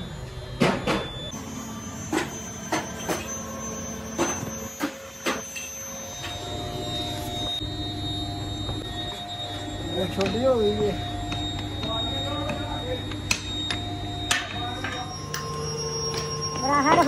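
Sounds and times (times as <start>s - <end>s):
sharp metallic knocks and clinks: 10.1s - 17.0s.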